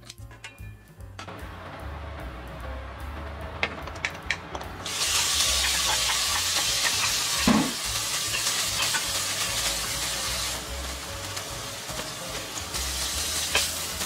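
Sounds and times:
food sizzling in hot oil: 0:04.8 - 0:14.0.

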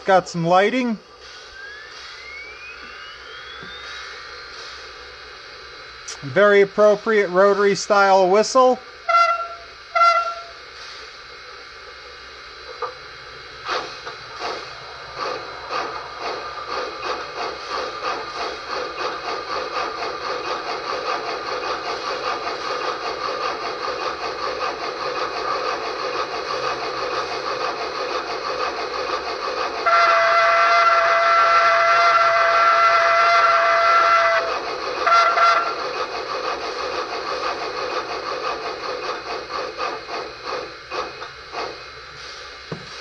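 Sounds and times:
steam exhaust chuffs: 0:00.0 - 0:43.0
steam hiss from speaker: 0:00.6 - 0:05.0, 0:10.6 - 0:11.2, 0:13.6 - 0:27.8, 0:39.4 - 0:43.0
steam whistle blast: 0:09.0 - 0:10.6, 0:29.8 - 0:35.8.

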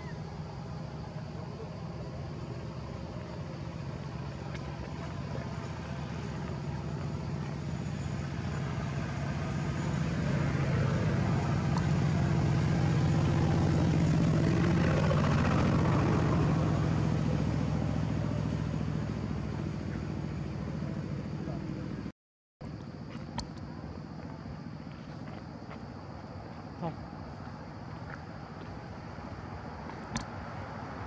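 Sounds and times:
vehicle engine running: 0:00.0 - 0:22.1.

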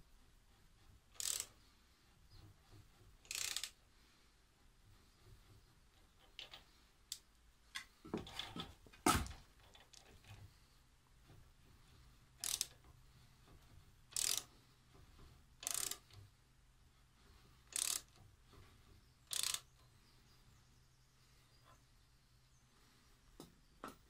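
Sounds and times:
socket ratchet clicking: 0:01.2 - 0:01.5, 0:03.2 - 0:03.8, 0:12.4 - 0:12.8, 0:14.1 - 0:14.5, 0:15.6 - 0:16.2, 0:17.7 - 0:18.2, 0:19.3 - 0:19.7
metal clicks: 0:12.4 - 0:13.0, 0:14.1 - 0:14.5.

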